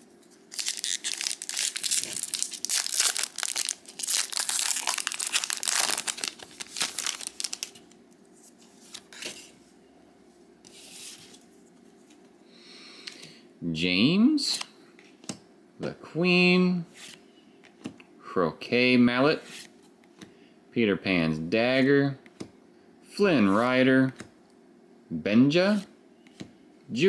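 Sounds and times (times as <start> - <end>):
plastic wrapper crinkling: 0.5 - 8.0.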